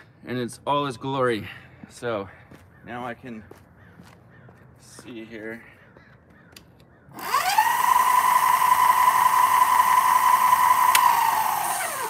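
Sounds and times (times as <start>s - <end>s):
electric bike motor whining: 7.1s - 12.0s.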